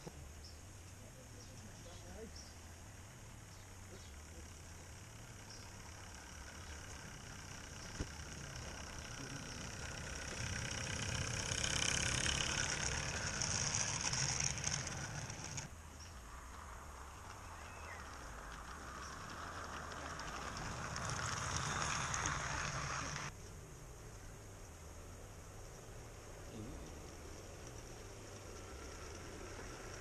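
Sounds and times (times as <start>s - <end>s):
steam locomotive hissing: 19.2s - 23.3s.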